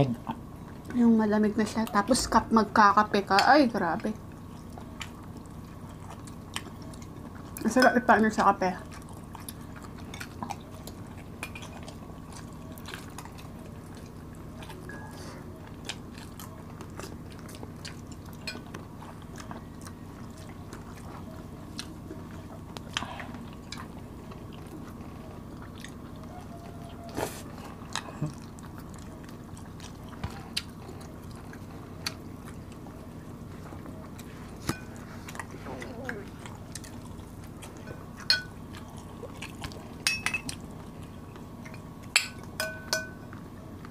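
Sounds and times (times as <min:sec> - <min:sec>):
people chewing and biting: 0:04.1 - 0:43.9
cutlery tapping plates: 0:42.2 - 0:43.2.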